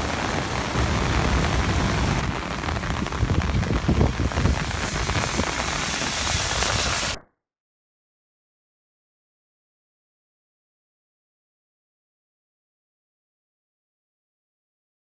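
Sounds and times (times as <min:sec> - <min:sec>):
floodwater rushing through channel: 0:00.0 - 0:07.2
heavy rain pouring: 0:00.0 - 0:07.2.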